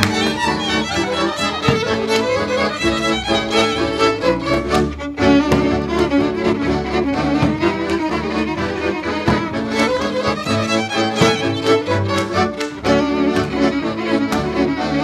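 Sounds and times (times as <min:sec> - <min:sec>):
hands slapping boots: 0:00.0 - 0:03.9, 0:07.0 - 0:15.0
violin-led folk string band: 0:00.0 - 0:15.0.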